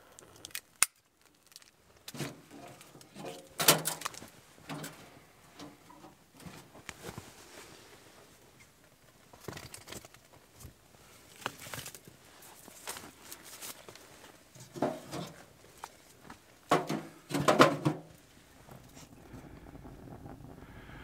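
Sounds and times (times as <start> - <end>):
kindling rustling and scraping: 1.4 - 7.6, 9.3 - 10.7, 11.3 - 19.2.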